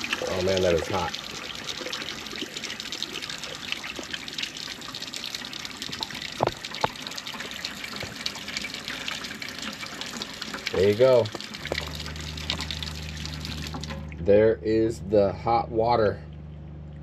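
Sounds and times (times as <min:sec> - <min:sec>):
faucet running into steel sink: 0:00.0 - 0:14.2.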